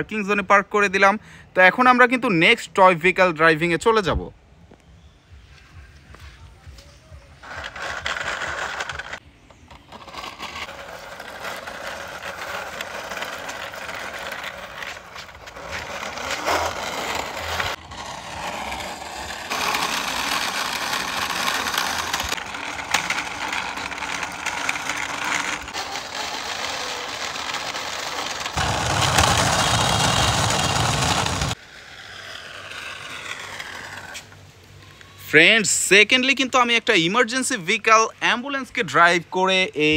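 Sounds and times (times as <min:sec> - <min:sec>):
toy wheels rattling and whirring: 0:07.3 - 0:35.1.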